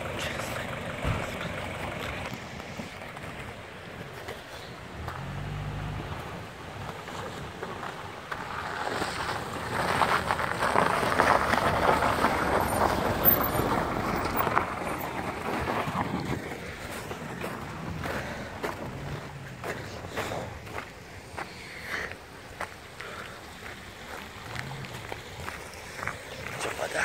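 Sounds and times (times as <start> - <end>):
low engine hum: 0.0 - 27.0
tyres crunching on snow: 0.0 - 27.0.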